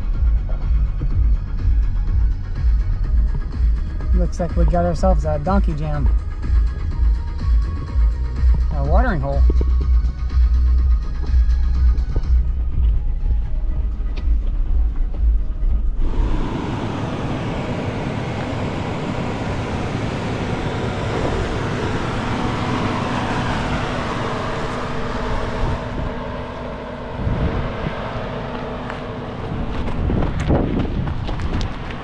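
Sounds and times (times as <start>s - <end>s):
low rumble: 0.0s - 32.0s
off-road vehicle driving noise: 0.0s - 32.0s.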